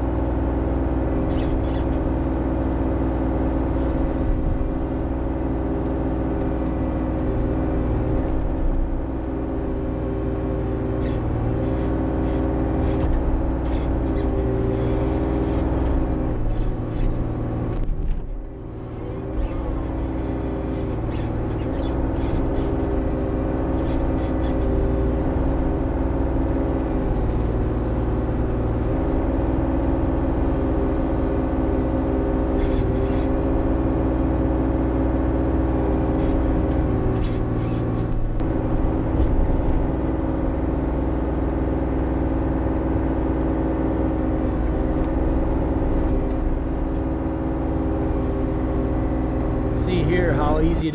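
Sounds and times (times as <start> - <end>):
excavator diesel engine running: 49.2 - 50.9.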